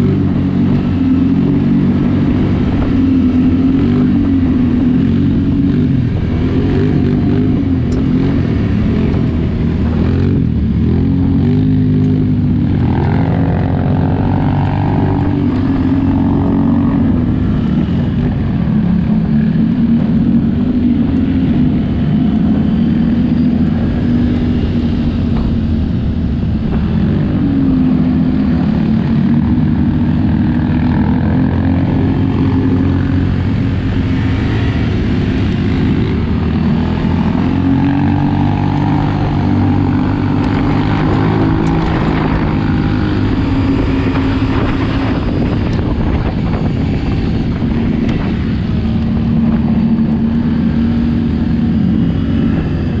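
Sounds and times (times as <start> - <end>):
atv engine revving: 0.0 - 53.0.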